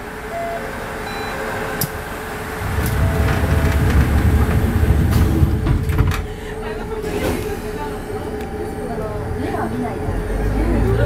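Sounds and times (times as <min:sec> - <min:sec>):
diesel railcar idling: 0:00.0 - 0:11.0
sliding door closing: 0:02.6 - 0:06.4, 0:07.0 - 0:07.8.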